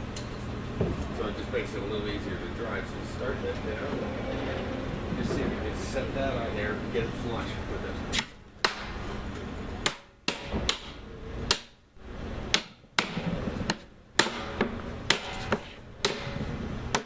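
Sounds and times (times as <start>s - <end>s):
hammer striking hoop driver: 8.1s - 9.0s, 12.5s - 17.0s.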